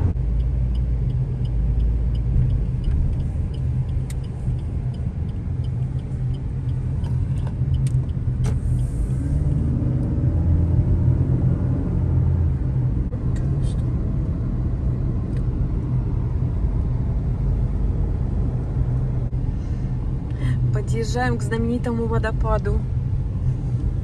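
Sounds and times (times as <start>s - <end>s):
engine and tyre rumble: 0.0s - 24.0s
light regular ticking: 0.2s - 8.4s.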